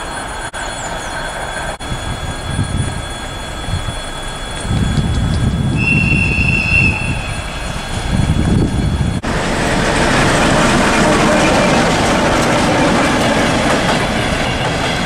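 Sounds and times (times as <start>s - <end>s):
wheel squeal: 0.0s - 9.2s
locomotive engine rumbling: 0.0s - 15.0s
rail noise: 0.0s - 15.0s.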